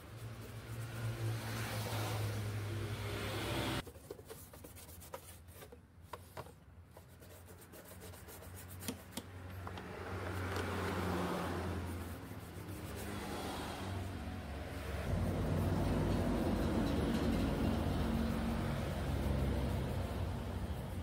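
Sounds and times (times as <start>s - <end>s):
paintbrush dabbing on plastic: 3.8s - 9.6s.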